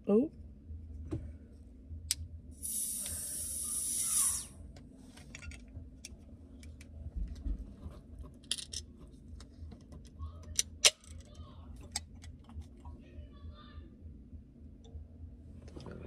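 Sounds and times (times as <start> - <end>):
drink can hissing open: 2.6 - 4.5.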